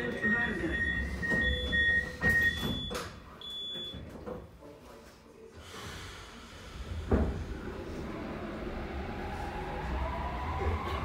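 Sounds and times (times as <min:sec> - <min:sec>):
high warning beep: 0:00.0 - 0:04.0.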